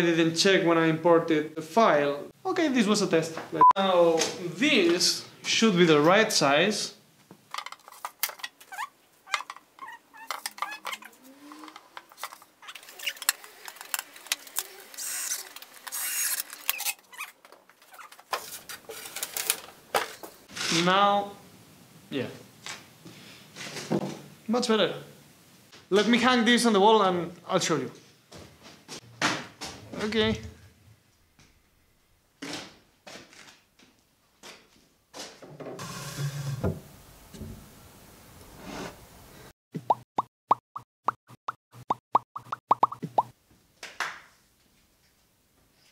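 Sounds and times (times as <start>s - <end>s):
sliding cabinet doors scraping: 35.4s - 37.7s, 38.4s - 39.1s.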